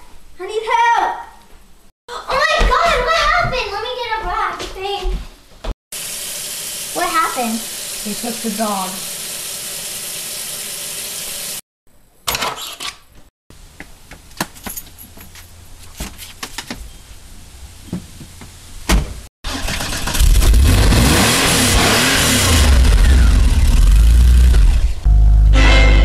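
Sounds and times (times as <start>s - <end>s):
water running from tap: 6.0s - 11.6s
car engine running: 19.5s - 25.6s.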